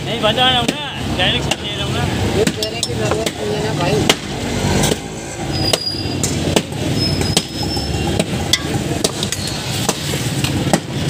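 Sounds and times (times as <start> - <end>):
street noise hum: 0.0 - 11.0
metal bowl clinks and knocks: 8.5 - 9.4.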